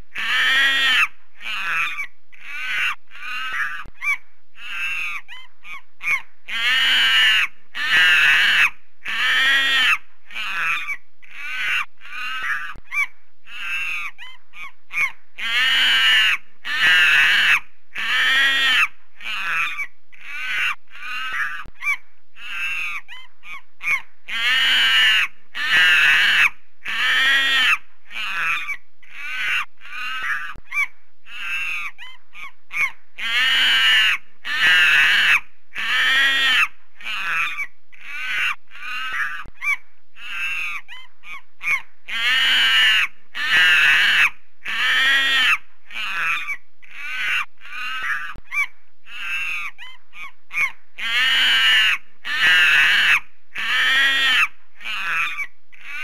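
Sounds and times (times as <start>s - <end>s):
primate screaming: 41.6s - 56.0s.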